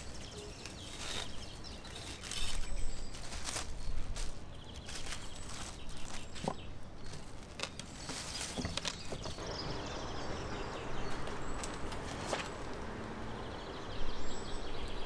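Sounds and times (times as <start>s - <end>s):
plastic wrap crinkling: 0.0s - 9.4s.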